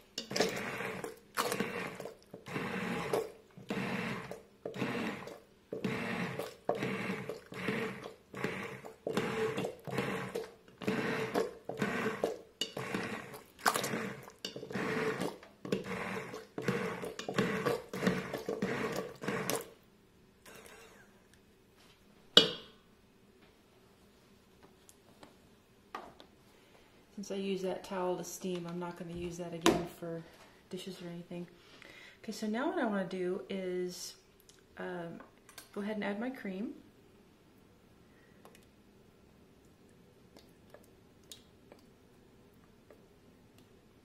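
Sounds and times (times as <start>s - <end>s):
stick blender churning soup: 0.0s - 19.8s.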